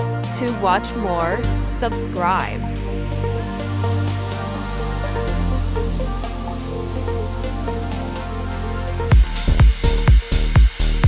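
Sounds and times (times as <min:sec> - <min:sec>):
hi-hats: 0:09.1 - 0:11.0
kick-drum beat: 0:09.1 - 0:11.0.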